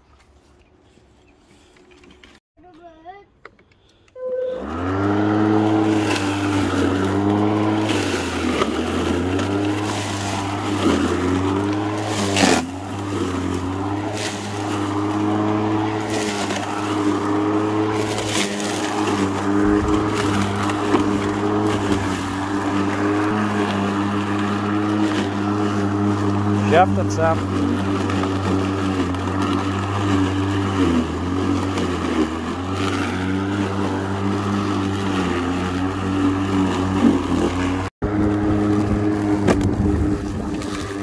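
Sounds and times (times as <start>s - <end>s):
cordless lawn mower running: 4.3s - 41.0s
material striking mower blade: 5.0s - 39.9s.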